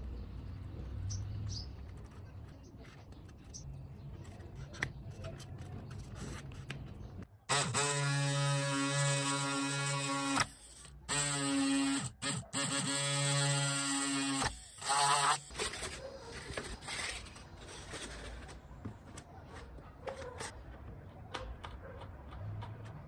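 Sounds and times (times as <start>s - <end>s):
mini electric drill buzzing: 7.5s - 15.9s.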